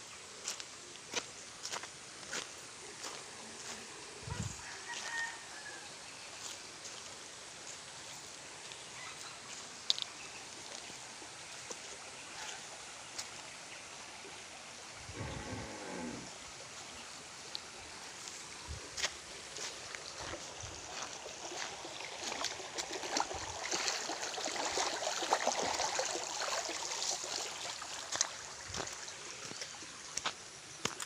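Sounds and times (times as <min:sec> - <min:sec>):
rooster crowing: 0:04.5 - 0:06.0
footsteps on gravel: 0:18.2 - 0:22.9, 0:28.1 - 0:31.0.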